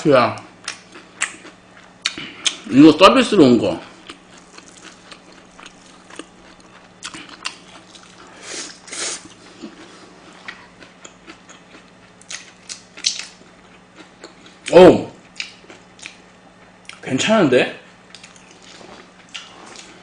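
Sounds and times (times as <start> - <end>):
person biting and chewing: 4.0 - 17.0.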